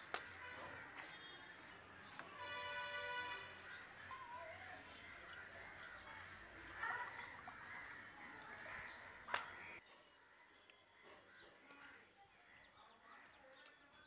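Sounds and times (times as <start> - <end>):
birds calling: 0.0 - 10.4.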